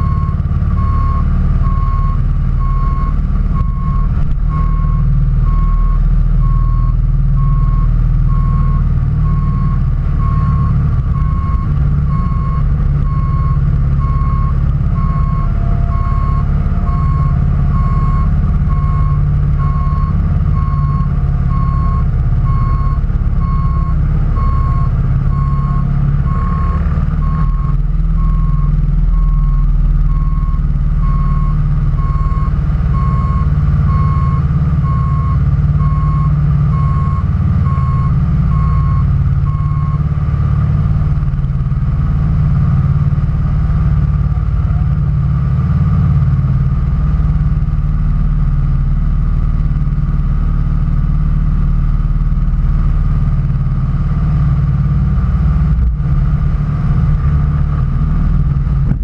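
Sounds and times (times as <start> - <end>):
backup alarm beeping: 0.0 - 40.0
engine running rumble: 0.0 - 59.0.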